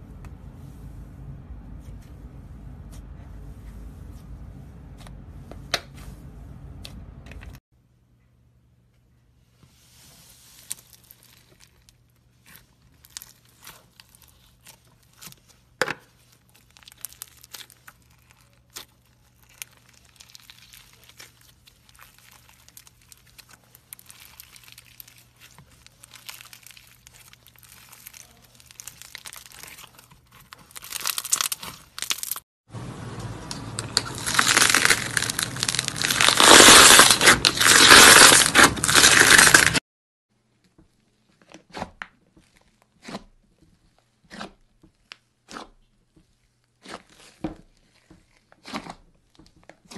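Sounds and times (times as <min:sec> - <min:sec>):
sticky crackles and pops of slime: 0:33.4 - 0:39.8.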